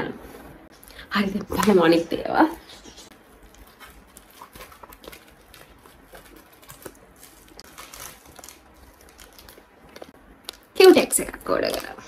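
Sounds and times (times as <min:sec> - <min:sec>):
plastic packet crinkling: 0:03.2 - 0:12.0.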